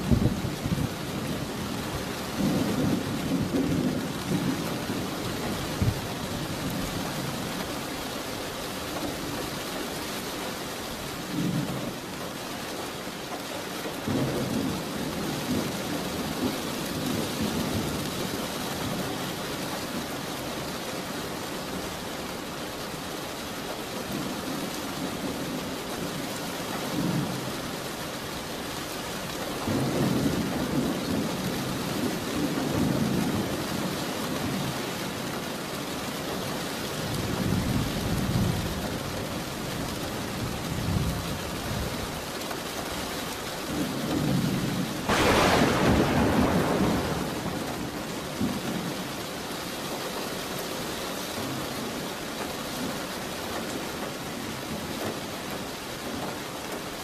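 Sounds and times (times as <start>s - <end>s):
steady rain: 0.0s - 57.0s
thunder rumbling: 44.2s - 49.4s.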